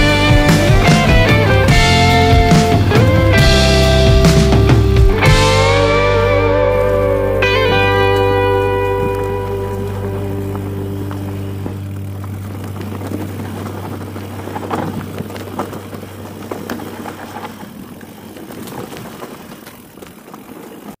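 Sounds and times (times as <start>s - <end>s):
guitar background music: 0.0s - 15.0s
bike rattling and knocking: 0.0s - 21.0s
bike tyres on dirt: 0.0s - 21.0s.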